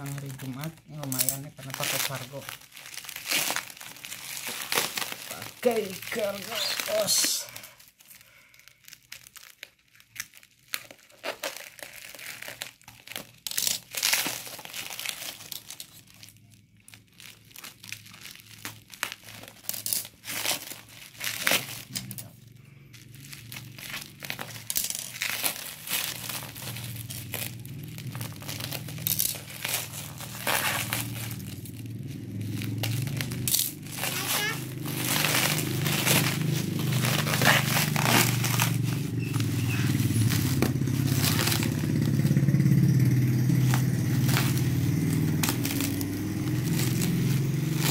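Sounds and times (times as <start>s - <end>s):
bubble wrap crinkling: 0.0s - 47.9s
packing tape tearing: 0.0s - 47.9s
low steady hum: 10.2s - 47.9s.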